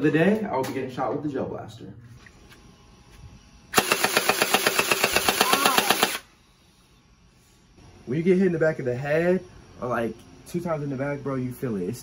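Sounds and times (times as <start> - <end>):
gel blaster full-auto burst: 3.7 - 6.3.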